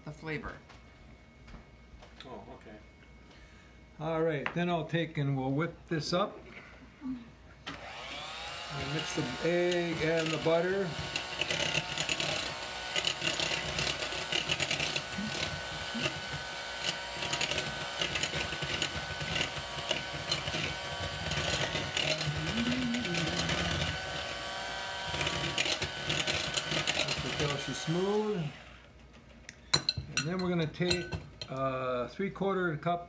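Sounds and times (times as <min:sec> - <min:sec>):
electric hand mixer whining: 0:07.7 - 0:29.0.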